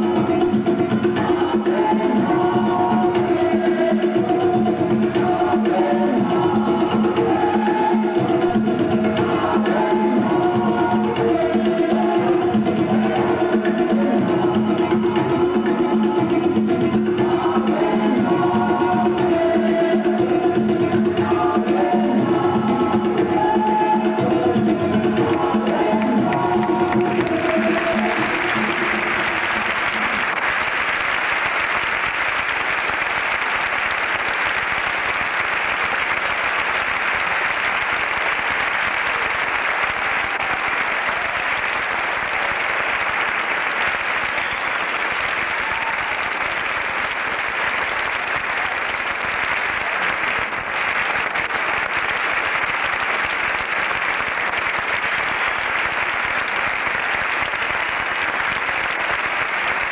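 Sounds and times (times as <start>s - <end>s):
audience applauding: 25.1s - 59.9s.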